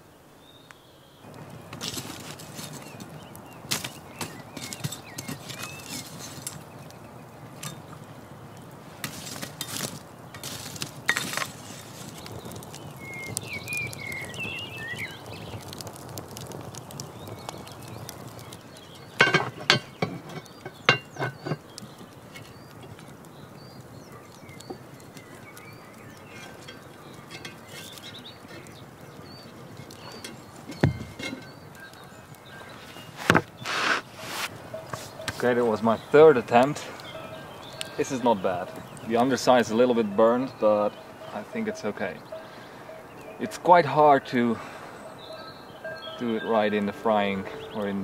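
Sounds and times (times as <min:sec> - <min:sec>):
campfire crackling and popping: 0:00.0 - 0:48.0
bird twittering: 0:12.1 - 0:15.8, 0:16.9 - 0:48.0.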